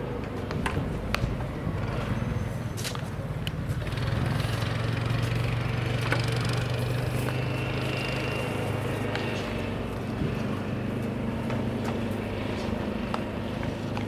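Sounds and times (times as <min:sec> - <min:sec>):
small engine running: 0:03.6 - 0:14.0.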